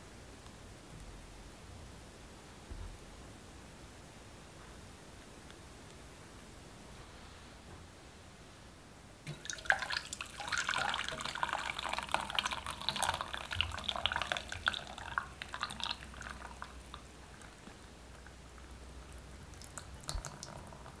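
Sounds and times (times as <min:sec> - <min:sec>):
liquid splashing and dripping: 0:09.3 - 0:21.0.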